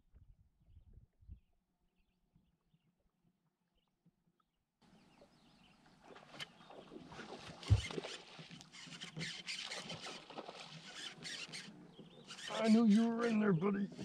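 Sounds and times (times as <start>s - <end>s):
fishing reel scratchy clicking: 7.6s - 14.0s.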